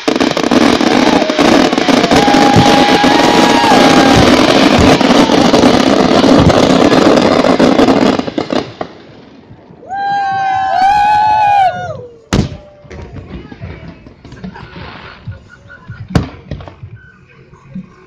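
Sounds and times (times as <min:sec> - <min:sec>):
fireworks fountain rushing hiss: 0:00.0 - 0:17.2.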